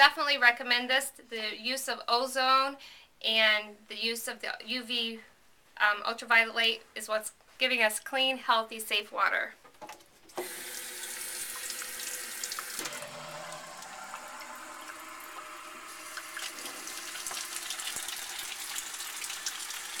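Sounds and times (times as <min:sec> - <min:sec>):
tap water running into metal sink: 0:10.3 - 0:20.0.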